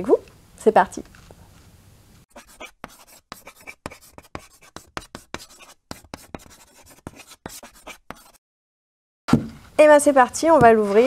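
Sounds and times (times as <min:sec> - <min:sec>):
chalk scratching on asphalt: 0:02.3 - 0:08.4.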